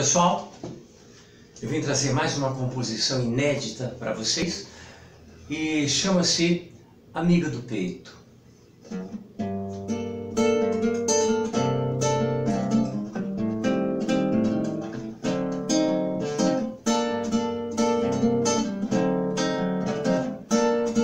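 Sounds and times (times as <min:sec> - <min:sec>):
nylon-string guitar chords: 0:08.9 - 0:21.0.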